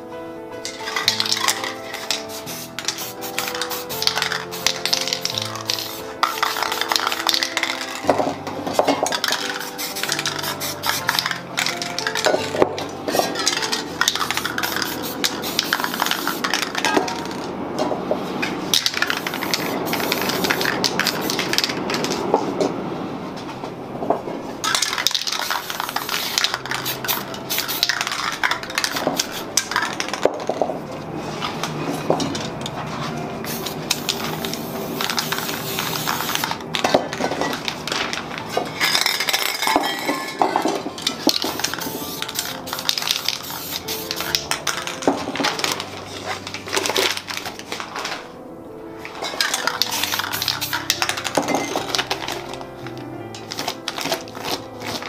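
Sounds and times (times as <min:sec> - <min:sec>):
spray cans clinking and rattling: 0:00.6 - 0:17.5, 0:18.5 - 0:22.4, 0:24.6 - 0:30.8, 0:31.4 - 0:48.4, 0:49.0 - 0:55.0
spray paint hissing: 0:00.7 - 0:08.1, 0:08.8 - 0:12.4, 0:13.4 - 0:17.3, 0:18.7 - 0:22.2, 0:24.6 - 0:30.2, 0:33.4 - 0:36.6, 0:41.2 - 0:45.0, 0:49.4 - 0:52.4, 0:53.4 - 0:55.0.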